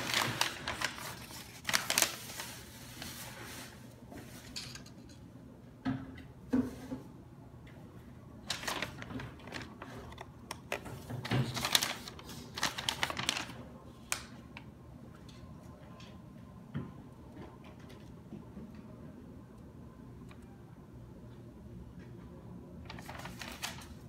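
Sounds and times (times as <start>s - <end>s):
paper crinkling and rustling: 0.0s - 4.5s, 8.4s - 14.3s, 22.8s - 24.0s.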